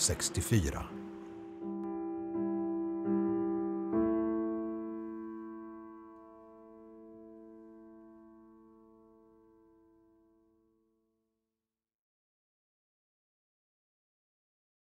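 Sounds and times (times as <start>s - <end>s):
soft piano chords: 0.0s - 10.9s.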